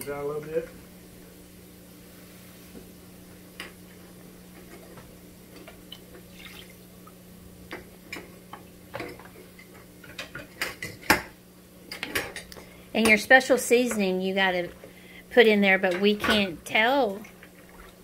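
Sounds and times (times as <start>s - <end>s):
water pouring and dripping: 6.2s - 6.8s.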